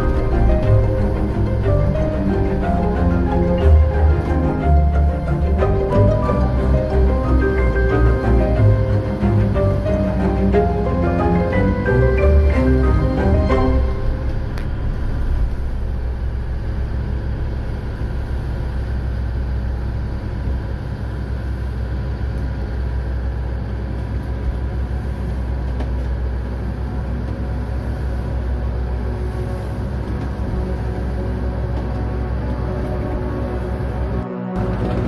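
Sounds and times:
marimba-like music: 0:00.0 - 0:14.6
boat engine drone: 0:00.0 - 0:35.0.

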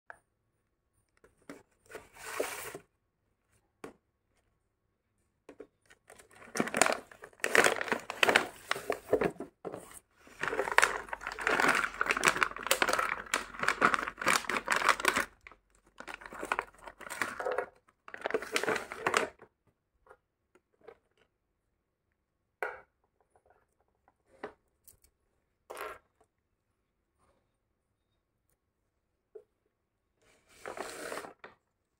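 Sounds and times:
plastic bag crinkling: 0:06.1 - 0:09.2, 0:10.3 - 0:19.3.

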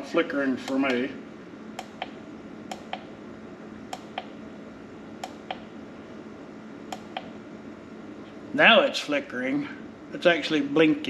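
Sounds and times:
push-button switch double clicks: 0:01.8 - 0:03.1.

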